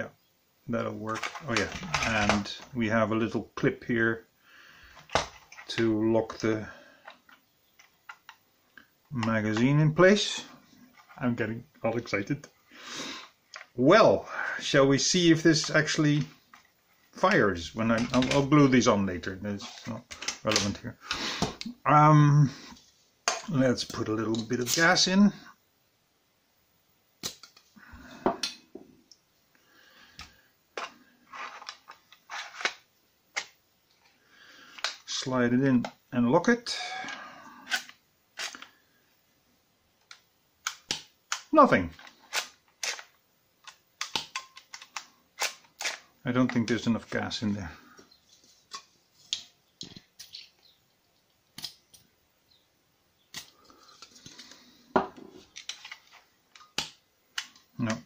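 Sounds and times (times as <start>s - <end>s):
plastic clicks: 40.0s - 46.6s.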